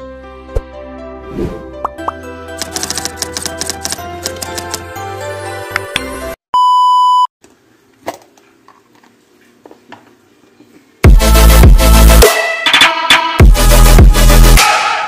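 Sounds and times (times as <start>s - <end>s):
light intro music: 0.2s - 6.4s
typing-like clicks: 2.6s - 4.8s
electronic dance music: 11.0s - 15.0s.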